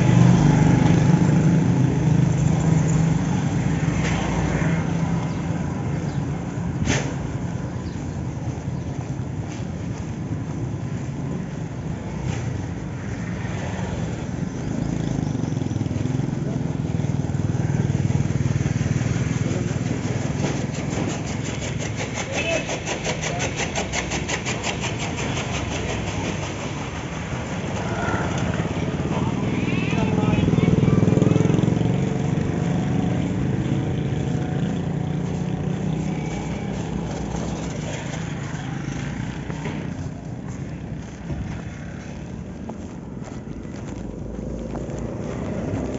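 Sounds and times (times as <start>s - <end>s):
road and wind noise: 0.0s - 45.9s
small vehicle engine running: 13.4s - 45.9s.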